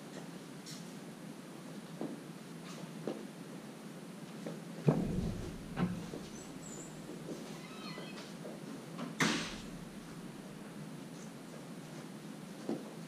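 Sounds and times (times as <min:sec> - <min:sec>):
faint high squeaks: 0:05.0 - 0:08.5.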